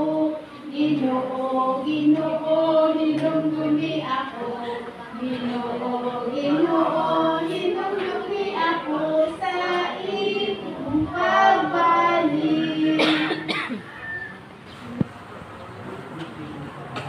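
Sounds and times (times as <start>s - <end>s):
children singing: 0.0s - 13.8s.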